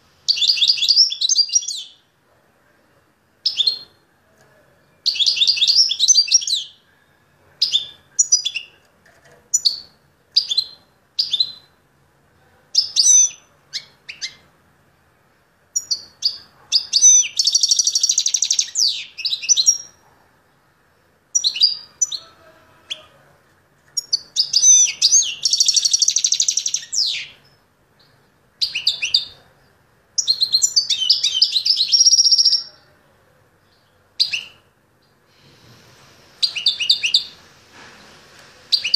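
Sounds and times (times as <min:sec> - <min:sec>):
finch chirping and twittering: 0:00.3 - 0:02.0, 0:03.4 - 0:04.0, 0:05.0 - 0:06.8, 0:07.6 - 0:11.7, 0:12.8 - 0:14.5, 0:15.8 - 0:20.0, 0:21.3 - 0:22.2, 0:23.9 - 0:29.4, 0:30.2 - 0:32.7, 0:36.4 - 0:37.4.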